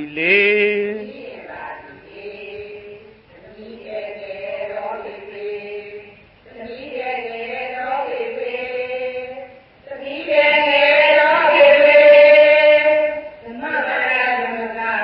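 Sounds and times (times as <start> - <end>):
person singing long notes: 0.0 - 1.1.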